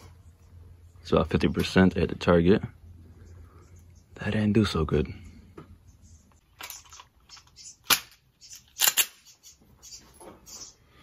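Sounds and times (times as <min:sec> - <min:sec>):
pistol metallic clicks: 0:06.6 - 0:09.3.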